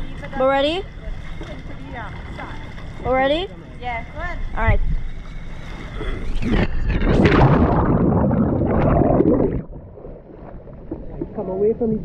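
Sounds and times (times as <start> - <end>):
splash into water: 6.4 - 11.1.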